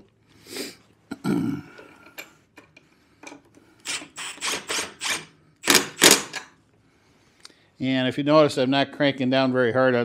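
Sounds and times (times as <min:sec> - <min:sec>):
impact wrench bursts: 0:03.8 - 0:06.5.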